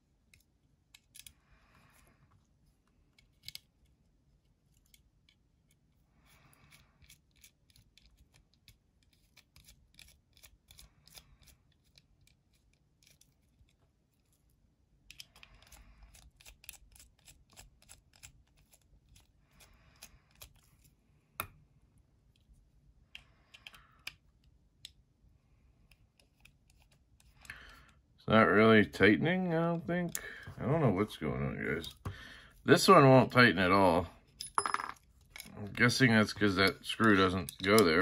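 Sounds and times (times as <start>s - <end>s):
screwdriver clicks and scrapes: 0.3s - 1.4s, 6.7s - 13.8s, 15.1s - 20.9s, 23.1s - 24.2s, 25.9s - 27.5s.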